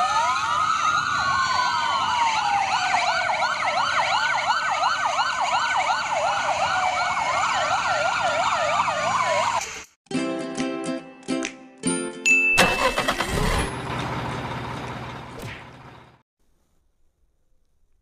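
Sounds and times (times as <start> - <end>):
fast siren yelp: 0.0 - 9.6
sirens wailing: 0.0 - 9.8.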